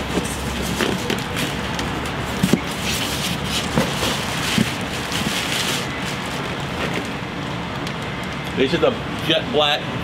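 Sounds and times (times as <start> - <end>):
plastic bags rustling: 0.0 - 7.2.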